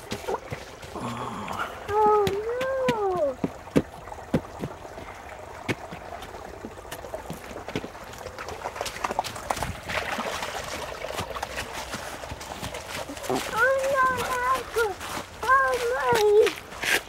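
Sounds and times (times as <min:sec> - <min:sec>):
creek trickling: 0:00.0 - 0:17.0
boots on wet leaves: 0:07.3 - 0:17.0.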